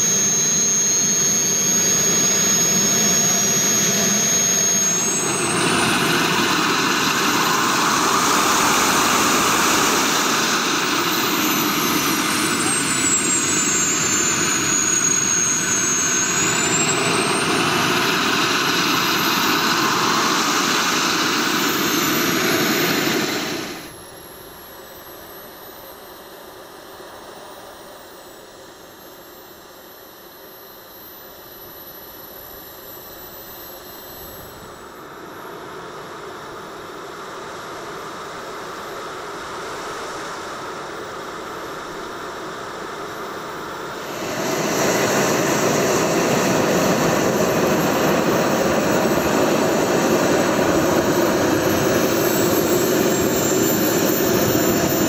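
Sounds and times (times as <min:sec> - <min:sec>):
gas turbines running: 0:00.0 - 0:24.0, 0:43.5 - 0:55.0.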